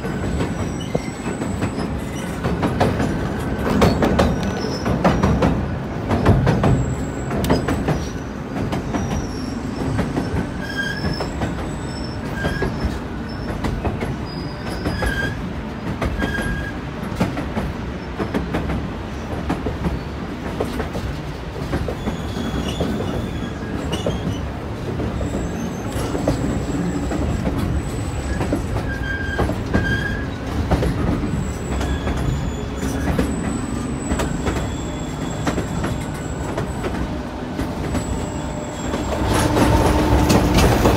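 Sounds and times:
train wheels rattling on rail: 0.0s - 40.9s
high-pitched wheel squeals: 0.1s - 2.4s, 8.9s - 13.6s, 14.2s - 15.4s, 22.0s - 24.5s, 25.2s - 30.5s, 31.2s - 37.2s, 37.8s - 40.8s.

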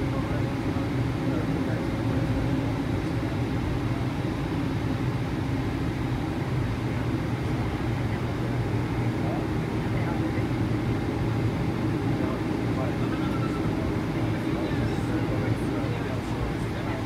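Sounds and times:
aircraft cabin engine drone: 0.0s - 17.0s.

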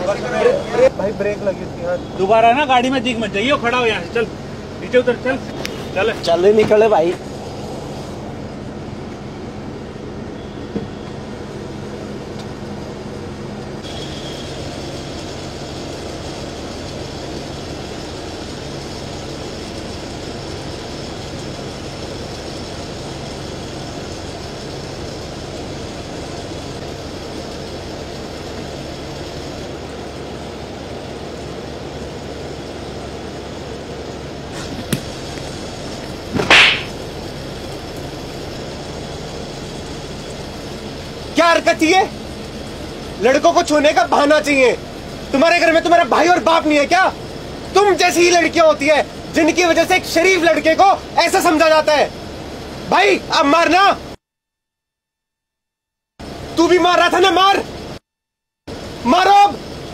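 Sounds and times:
bus cabin rumble and hum: 0.0s - 54.2s
loud swish: 36.3s - 37.0s.

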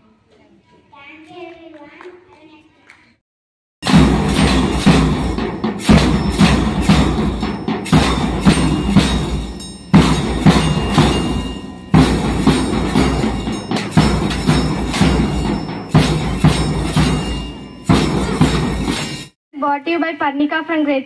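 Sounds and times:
bass drum strokes: 3.8s - 19.3s
metal shakers: 3.8s - 19.3s
hand cymbals: 3.8s - 19.4s.

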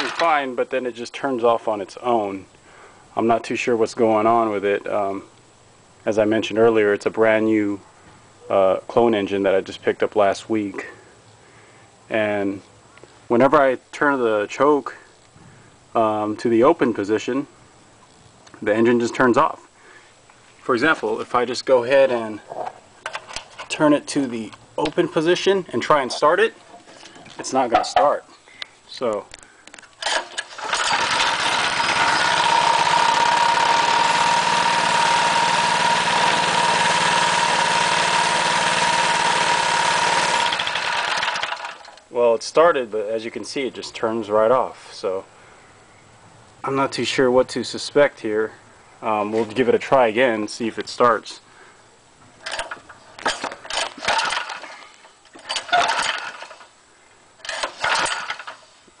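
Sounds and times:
small engine starting and running: 0.0s - 0.4s, 30.0s - 42.0s, 52.4s - 56.7s, 57.4s - 58.7s.

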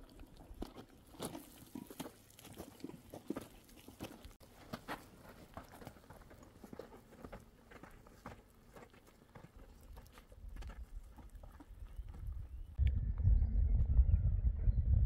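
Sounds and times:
footsteps crunching on gravel: 0.2s - 12.4s
low rumble: 12.8s - 15.0s.

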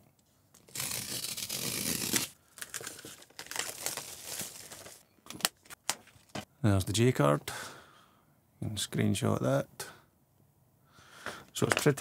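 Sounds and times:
cardboard tearing: 0.6s - 5.0s
plastic shrink-wrap crinkling: 0.7s - 6.3s.

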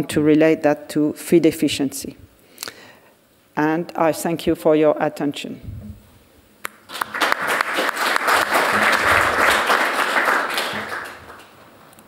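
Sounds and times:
audience applauding: 6.7s - 11.6s.

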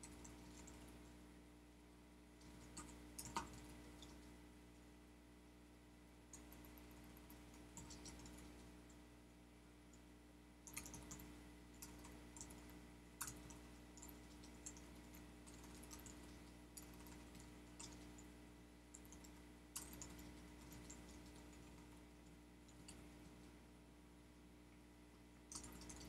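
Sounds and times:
low electrical hum: 0.0s - 26.0s
keyboard typing: 2.5s - 4.1s, 7.8s - 8.5s, 10.7s - 11.2s, 13.2s - 18.2s, 18.9s - 21.8s, 25.5s - 26.0s.

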